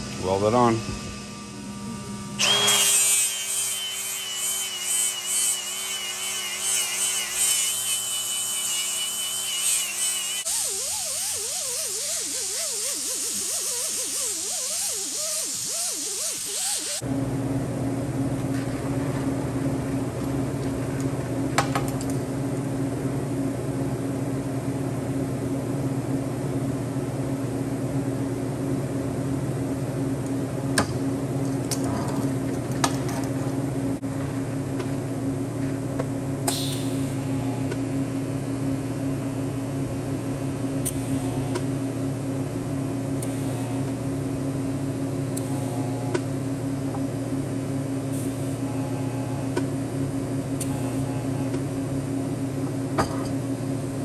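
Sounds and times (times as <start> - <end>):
steady mechanical hum: 0.0 - 54.0.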